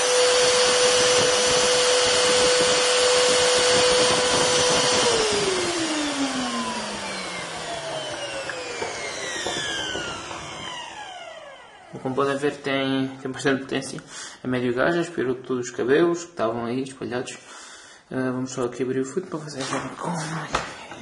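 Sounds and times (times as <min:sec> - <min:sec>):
vacuum cleaner motor whining: 0:00.0 - 0:12.7.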